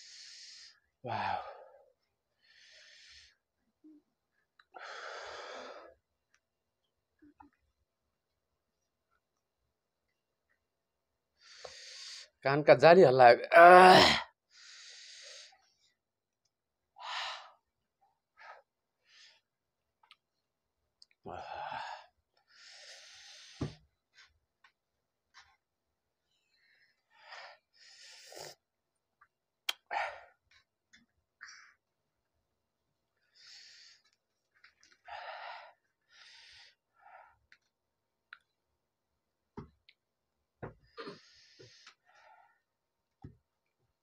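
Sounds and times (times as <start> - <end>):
man breathing hissing breaths: 0.0 - 1.5, 2.4 - 3.4, 11.4 - 12.4, 14.5 - 15.6, 21.4 - 23.8, 27.1 - 28.6, 33.3 - 34.0.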